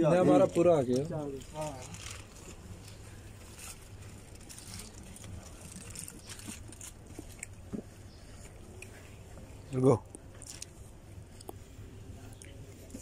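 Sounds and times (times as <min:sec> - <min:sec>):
low steady hum: 0:00.0 - 0:13.0
foil rustling: 0:00.2 - 0:07.5.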